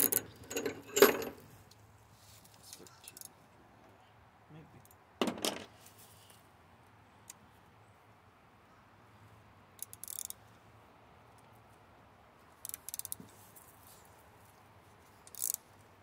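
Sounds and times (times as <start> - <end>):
ratchet wrench clicking: 9.8 - 10.4, 12.6 - 13.2, 15.3 - 15.6.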